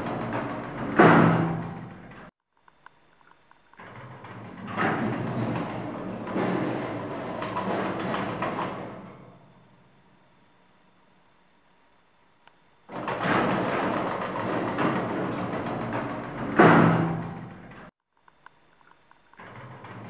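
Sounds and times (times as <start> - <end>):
elevator doors banging shut: 0.0 - 2.3, 3.8 - 9.6, 12.9 - 17.9
elevator doors sliding: 0.0 - 2.3, 3.8 - 9.8, 12.9 - 17.9, 19.4 - 20.0.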